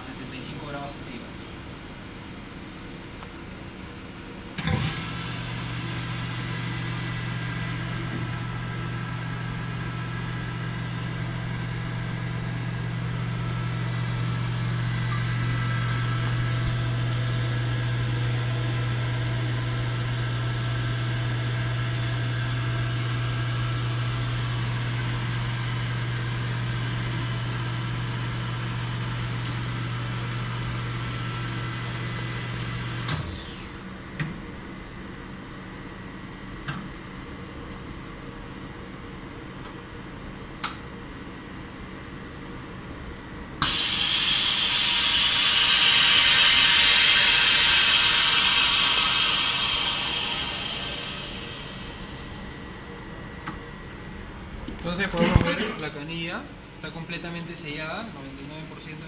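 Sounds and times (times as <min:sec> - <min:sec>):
vacuum pump humming: 0:00.0 - 0:34.8, 0:35.9 - 0:59.0
air hissing: 0:43.6 - 0:52.6.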